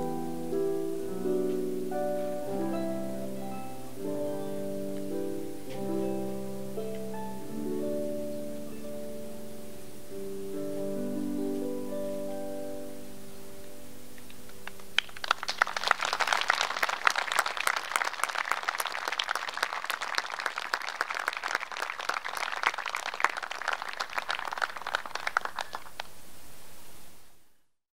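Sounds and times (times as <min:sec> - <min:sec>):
audience applauding: 0:14.5 - 0:26.2.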